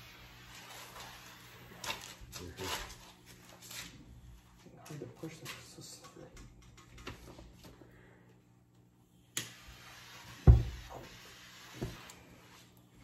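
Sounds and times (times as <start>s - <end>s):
gas hiss: 9.3s - 12.8s.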